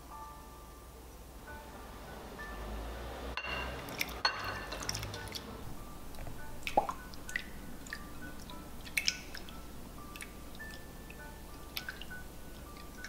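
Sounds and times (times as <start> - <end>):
soft background music: 0.0 - 13.0
water splashing in a bowl: 3.4 - 13.0.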